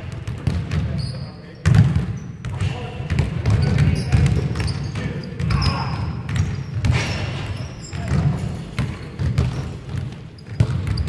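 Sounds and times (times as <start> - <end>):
basketball bouncing on wooden floor: 0.0 - 1.0, 1.6 - 5.7, 6.3 - 11.0.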